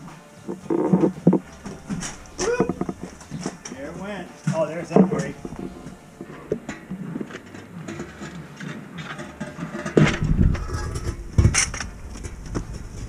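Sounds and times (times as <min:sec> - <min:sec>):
hand truck rattling on concrete: 0:00.6 - 0:13.0
metal clatter: 0:04.8 - 0:13.0.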